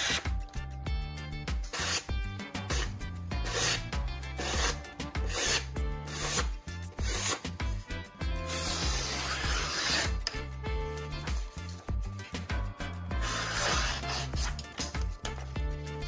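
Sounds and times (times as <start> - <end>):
background music: 0.0 - 16.0
knife slicing paper: 1.6 - 7.6, 8.4 - 10.4, 13.2 - 15.5.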